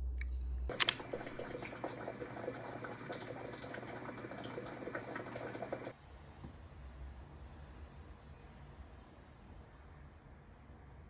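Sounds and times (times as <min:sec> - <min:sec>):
water running from tap: 0:00.7 - 0:05.9.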